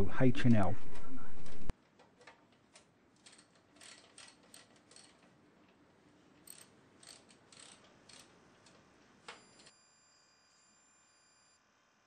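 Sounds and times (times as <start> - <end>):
socket ratchet clicking: 3.2 - 5.3, 6.5 - 8.4.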